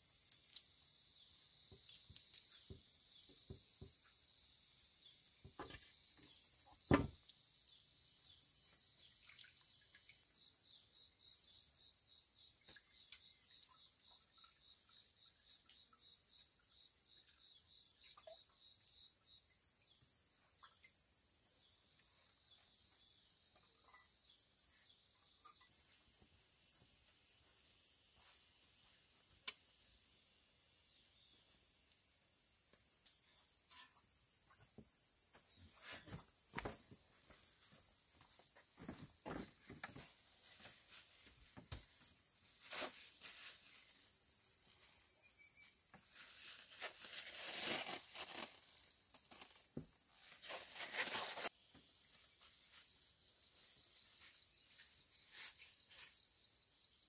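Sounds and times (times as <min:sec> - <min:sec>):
insects droning: 0:00.0 - 0:57.0.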